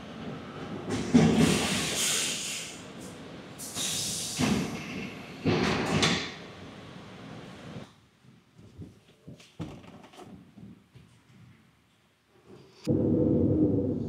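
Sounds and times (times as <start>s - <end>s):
air brakes hissing: 1.2s - 2.8s, 3.6s - 5.2s.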